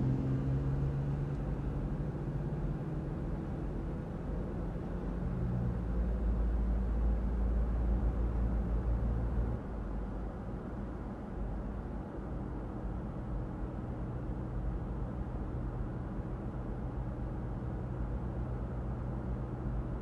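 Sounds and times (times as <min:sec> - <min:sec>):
road noise: 0:00.0 - 0:12.5.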